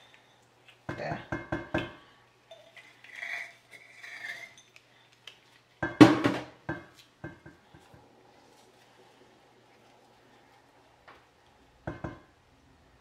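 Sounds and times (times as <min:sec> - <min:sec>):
spatula scraping glass jar: 0:02.5 - 0:04.8
knocks on metal bowl: 0:05.8 - 0:07.5, 0:11.9 - 0:12.3.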